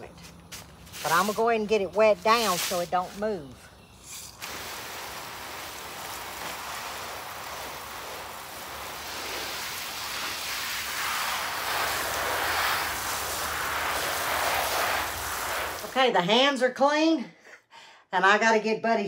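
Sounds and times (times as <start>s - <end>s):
hose spraying water on cardboard: 0.8s - 3.3s, 4.2s - 16.0s.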